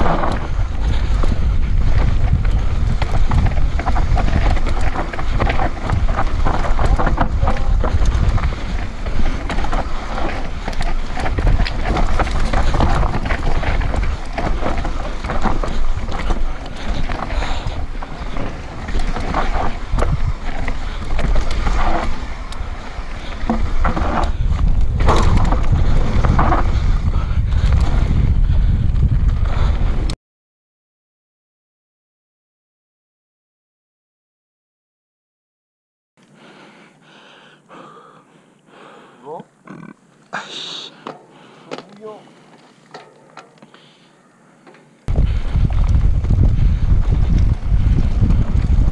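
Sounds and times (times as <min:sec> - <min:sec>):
bike rattling on dirt trail: 0:00.0 - 0:30.2, 0:41.0 - 0:48.9
wind buffeting microphone: 0:00.0 - 0:30.2, 0:45.1 - 0:48.9.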